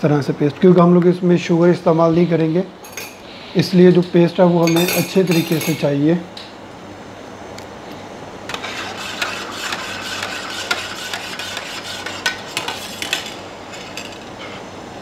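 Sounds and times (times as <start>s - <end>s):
spoon stirring in metal jug: 8.5s - 14.2s.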